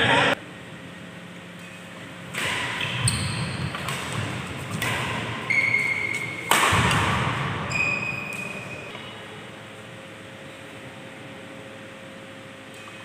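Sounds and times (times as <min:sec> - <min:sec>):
rackets hitting shuttlecock: 0:01.6 - 0:09.1.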